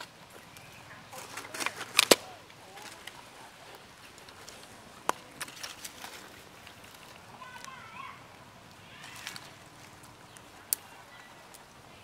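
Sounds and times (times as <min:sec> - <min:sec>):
dry leaves and twigs crackling: 0:00.0 - 0:12.0
sharp cracks: 0:01.2 - 0:03.2
faint high wavering calls: 0:07.3 - 0:12.0.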